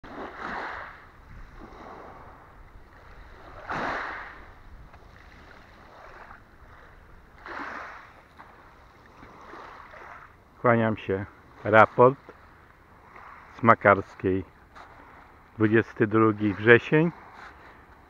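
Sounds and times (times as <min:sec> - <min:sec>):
waves washing on pebble beach: 0:00.1 - 0:08.6.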